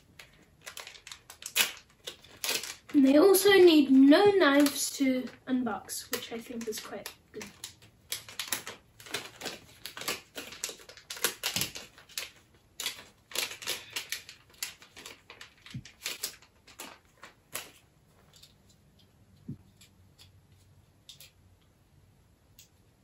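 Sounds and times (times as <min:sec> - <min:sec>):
plastic packaging crinkling: 0:00.0 - 0:05.4, 0:06.0 - 0:18.8.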